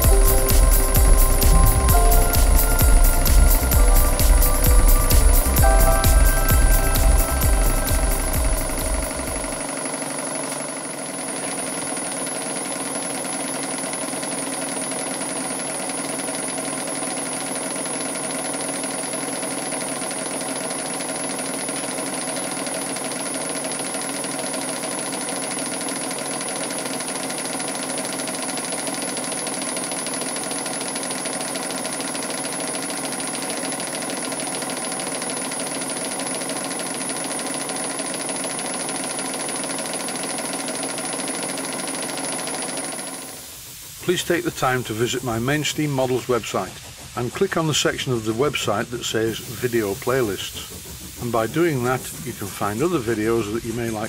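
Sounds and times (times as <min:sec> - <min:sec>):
model steam engine running: 0:00.0 - 0:54.0.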